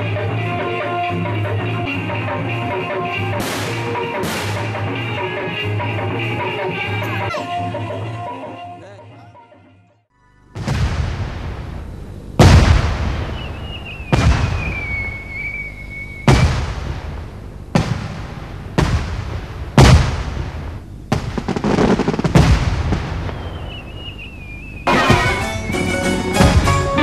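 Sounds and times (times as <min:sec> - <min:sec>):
firework bangs: 0:03.3 - 0:05.2, 0:10.6 - 0:27.0
firework crackling: 0:03.4 - 0:05.2, 0:10.6 - 0:27.0
firework whistle: 0:13.1 - 0:16.6, 0:23.2 - 0:26.0.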